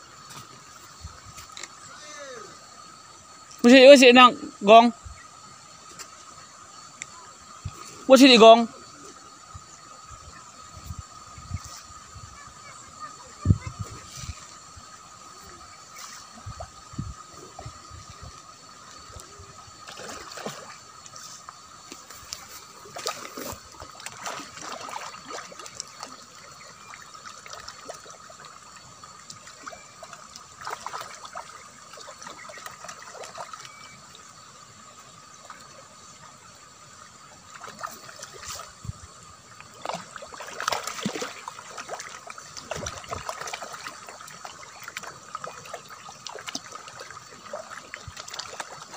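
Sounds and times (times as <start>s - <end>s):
fish splashing and slurping: 8.8s - 48.9s
faint steady high tone: 33.5s - 34.3s.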